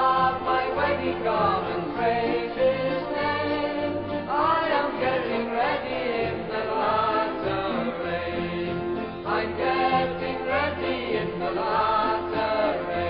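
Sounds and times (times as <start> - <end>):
musical accompaniment: 0.0 - 13.0
voices singing gospel: 0.0 - 13.0.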